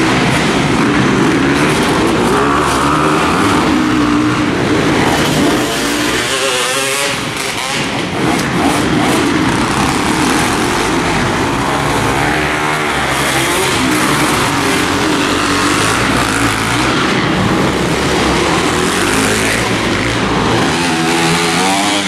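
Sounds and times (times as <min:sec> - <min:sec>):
motocross bike engines revving: 0:00.0 - 0:22.0.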